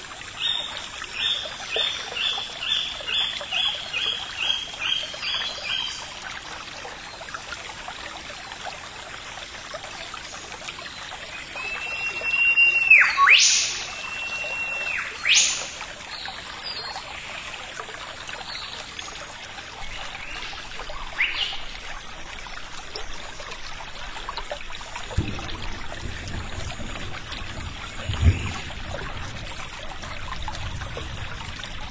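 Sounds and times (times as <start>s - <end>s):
running water rushing: 0.0s - 31.9s
loud whistled calls: 11.6s - 15.8s.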